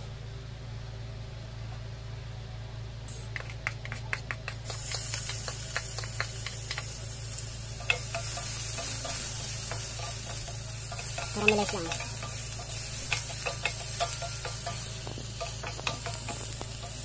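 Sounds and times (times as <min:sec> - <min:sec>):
quick taps: 0:03.3 - 0:07.0
wooden spatula clicking on pan: 0:03.4 - 0:07.0, 0:07.8 - 0:17.0
onion sizzling in hot oil: 0:04.5 - 0:17.0.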